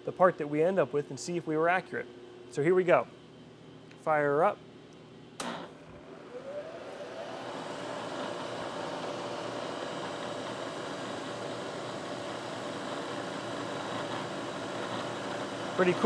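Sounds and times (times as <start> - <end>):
milling machine spindle whine: 6.0 - 16.0.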